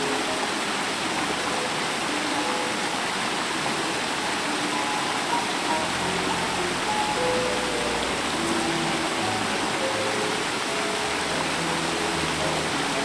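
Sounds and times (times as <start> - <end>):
creek rushing over rocks: 0.0 - 13.0.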